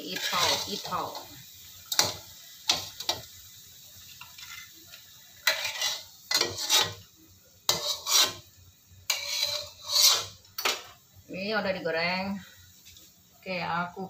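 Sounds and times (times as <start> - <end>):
metal spatula scraping a wok: 0.0 - 3.4, 4.1 - 7.1, 7.7 - 11.0.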